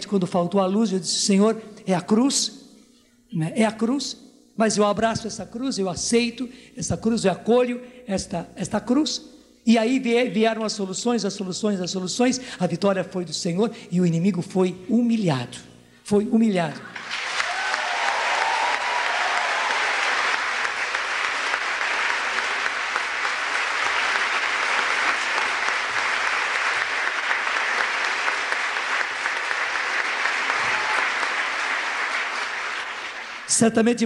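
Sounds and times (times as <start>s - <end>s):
crowd applauding: 16.9s - 33.6s.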